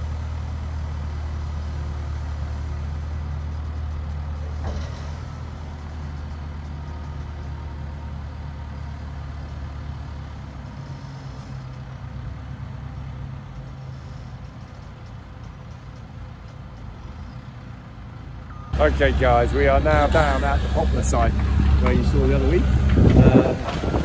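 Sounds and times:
diesel engine running: 0:00.0 - 0:24.0
wood fines tipping into trailer: 0:04.4 - 0:05.5.

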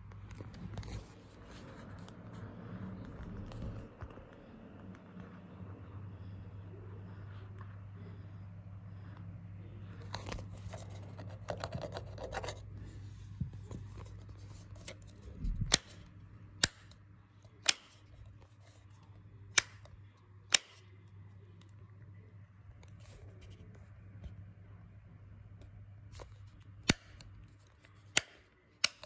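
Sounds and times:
fingers rustling on faceplate: 0:10.0 - 0:16.9
rocker switch clicks: 0:16.6 - 0:17.0, 0:17.6 - 0:18.0, 0:19.5 - 0:19.9, 0:20.5 - 0:20.8, 0:28.1 - 0:29.0.

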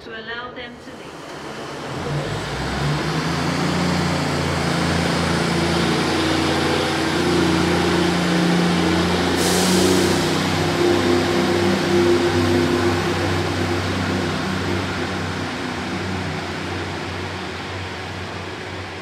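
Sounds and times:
diesel train engine: 0:00.0 - 0:19.0
air hiss: 0:09.0 - 0:11.0.

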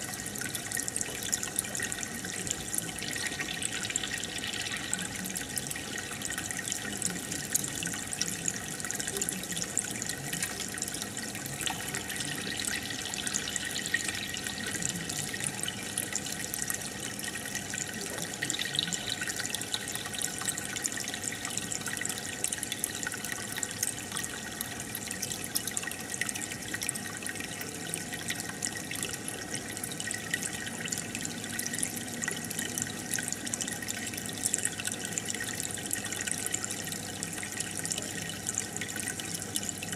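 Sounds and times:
aquarium filter bubbling: 0:00.0 - 0:39.9.

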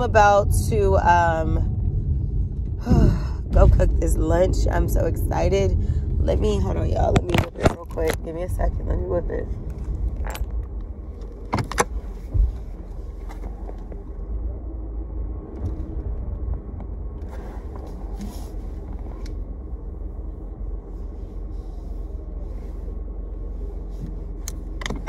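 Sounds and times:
car road and engine noise: 0:00.0 - 0:25.0.

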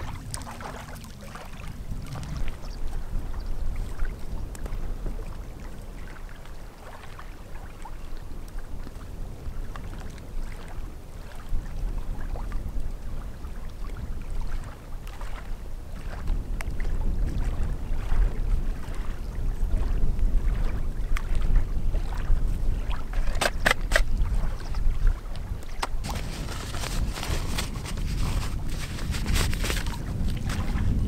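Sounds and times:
wind rumbling on microphone: 0:00.0 - 0:31.0
twigs and bark rustling: 0:26.0 - 0:30.9.

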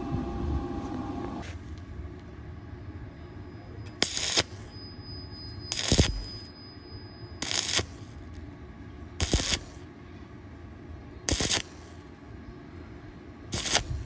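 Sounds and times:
welding arc bursts: 0:04.0 - 0:04.7, 0:05.7 - 0:06.5, 0:07.4 - 0:08.2, 0:09.2 - 0:09.8, 0:11.3 - 0:12.0, 0:13.5 - 0:14.0.

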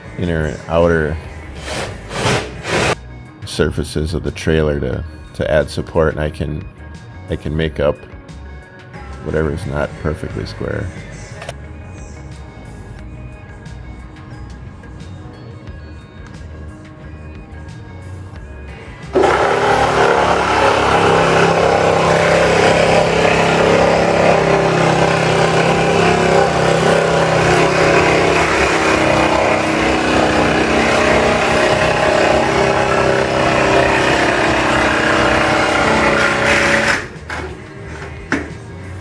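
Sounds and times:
reciprocating saw cutting metal: 0:01.5 - 0:03.0, 0:19.1 - 0:37.2.

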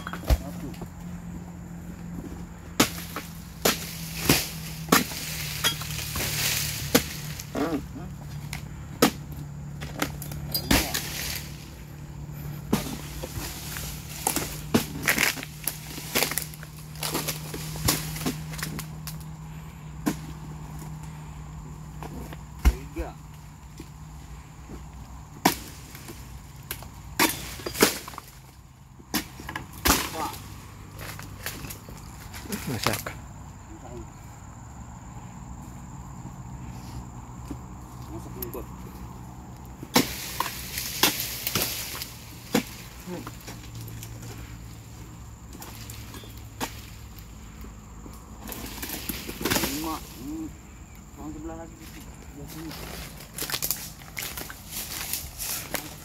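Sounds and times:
steel chisel chopping palm trunk: 0:00.0 - 0:00.7, 0:02.8 - 0:07.5, 0:09.0 - 0:11.4, 0:27.1 - 0:28.3, 0:39.8 - 0:43.4
chisel striking palm fronds: 0:02.7 - 0:07.8, 0:08.5 - 0:11.7, 0:12.6 - 0:19.2, 0:25.4 - 0:28.4, 0:29.1 - 0:31.8, 0:39.8 - 0:44.3, 0:45.5 - 0:46.9, 0:48.4 - 0:50.0.

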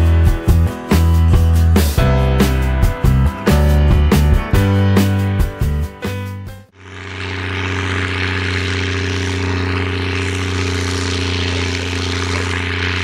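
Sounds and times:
tractor diesel engine under load: 0:06.7 - 0:13.0.

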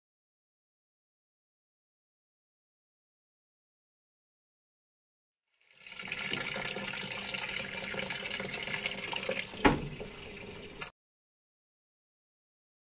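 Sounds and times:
water filling washing machine tub: 0:05.7 - 0:10.9
thump: 0:09.6 - 0:10.2.

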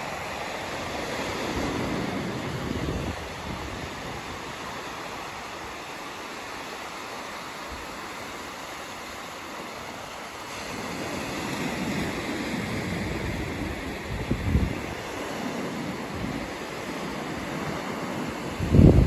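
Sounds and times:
waves washing up a beach: 0:00.0 - 0:19.0.

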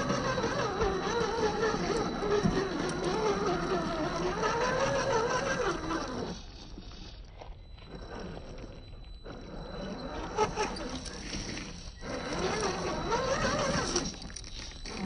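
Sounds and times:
electric motor whining: 0:00.0 - 0:15.0.

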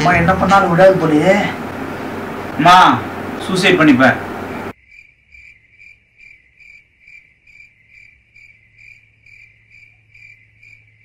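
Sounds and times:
low steady hum: 0:00.0 - 0:04.8
cricket chirping: 0:04.7 - 0:11.0.

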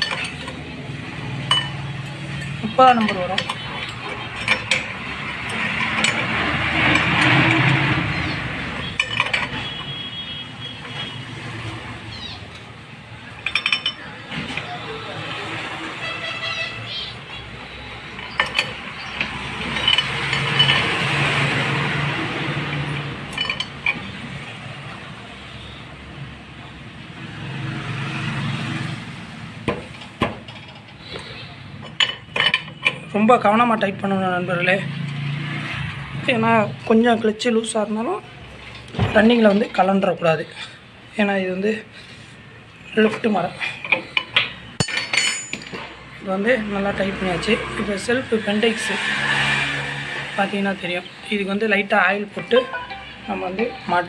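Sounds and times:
spanner clinking on metal nut: 0:00.0 - 0:00.6, 0:01.5 - 0:01.8, 0:02.4 - 0:07.9, 0:08.8 - 0:09.9, 0:13.3 - 0:14.7, 0:18.1 - 0:21.1, 0:22.7 - 0:24.2, 0:31.8 - 0:33.1, 0:43.8 - 0:45.9
motor vehicle passing by: 0:00.5 - 0:02.8, 0:03.5 - 0:09.6, 0:10.8 - 0:12.6, 0:13.2 - 0:30.0, 0:34.3 - 0:36.9, 0:45.8 - 0:51.3.

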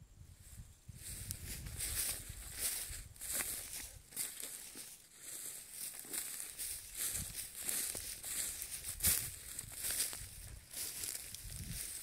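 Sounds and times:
wind rumble on microphone: 0:00.0 - 0:04.0, 0:06.9 - 0:12.0
footsteps crunching through dry grass: 0:00.4 - 0:12.0.

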